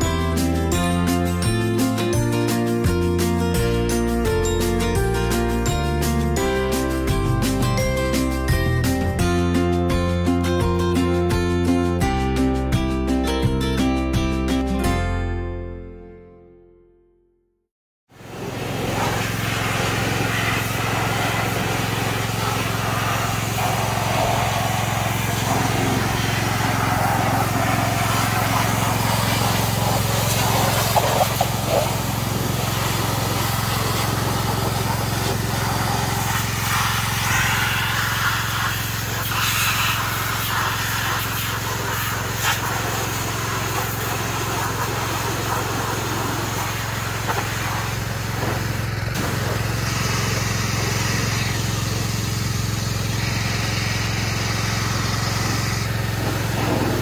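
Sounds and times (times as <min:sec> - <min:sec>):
small engine humming: 0:18.2 - 0:57.0
water jet hissing: 0:18.2 - 0:57.0.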